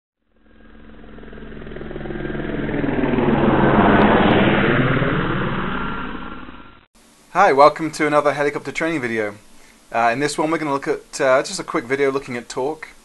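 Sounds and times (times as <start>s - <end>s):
helicopter flying past: 0.2s - 6.9s.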